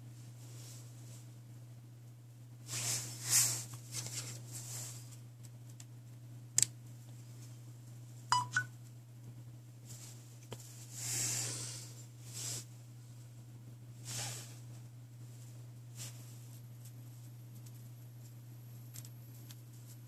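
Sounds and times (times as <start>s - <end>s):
steady low hum: 0.0s - 20.0s
phone two-note beep: 8.3s - 8.7s.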